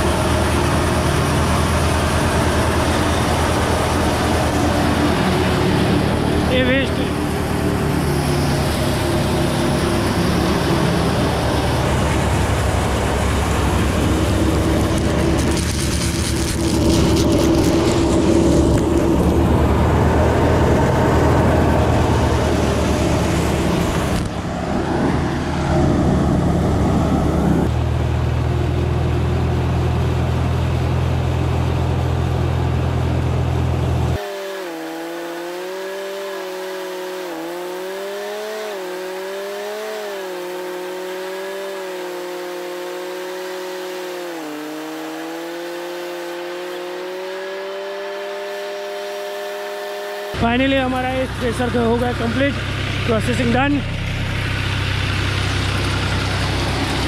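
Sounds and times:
thresher machine running: 0.0 - 28.4
tractor engine humming: 0.0 - 34.2, 50.3 - 57.0.

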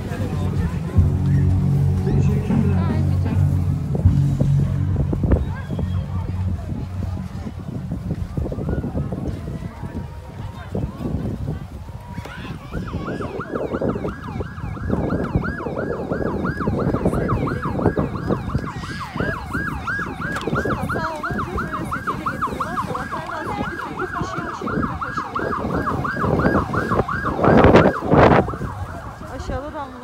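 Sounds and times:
busy background noise: 0.0 - 30.0
electronic siren yelping: 12.7 - 29.6.

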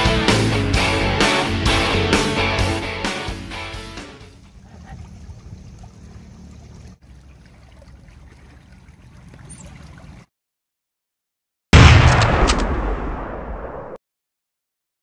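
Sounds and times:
sudden loud boom: 11.7 - 14.0.

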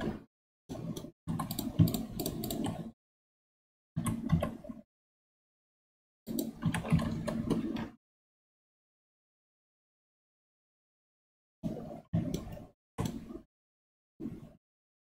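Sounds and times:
keyboard and mouse clicking: 0.0 - 2.9, 4.0 - 4.8, 6.3 - 7.9, 12.2 - 13.4.

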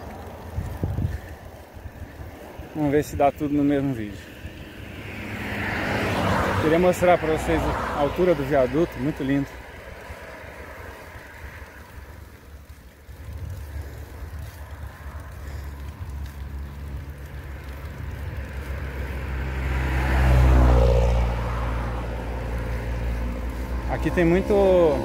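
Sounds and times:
vehicle passing by: 0.0 - 25.0.

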